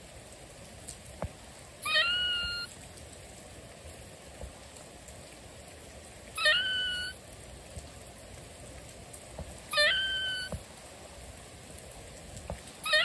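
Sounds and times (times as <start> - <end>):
steady rain: 0.0 - 13.0
animal call stuttering: 1.8 - 2.7, 6.4 - 7.2, 9.7 - 10.6.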